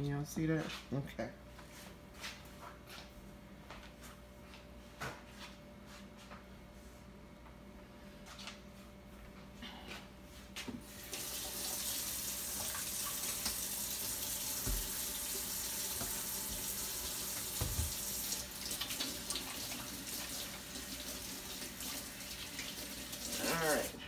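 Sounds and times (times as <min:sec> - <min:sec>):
tap water running into sink: 0:10.9 - 0:23.9.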